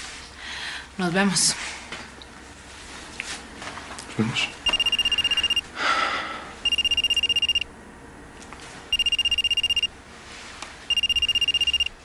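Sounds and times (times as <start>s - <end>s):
phone ringtone pulsing: 4.7s - 5.7s, 6.6s - 7.7s, 8.9s - 9.9s, 10.9s - 12.0s.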